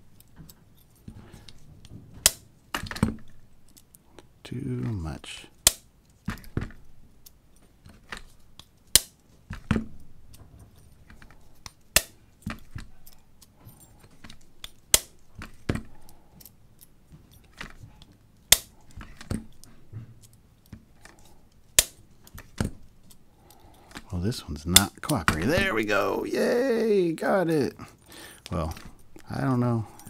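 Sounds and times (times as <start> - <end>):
key rattling: 9.9 - 26.0, 27.9 - 30.0.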